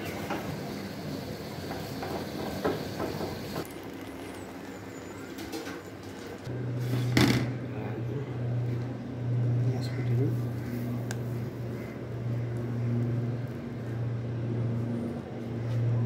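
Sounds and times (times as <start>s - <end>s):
steady low hum: 6.4s - 16.0s.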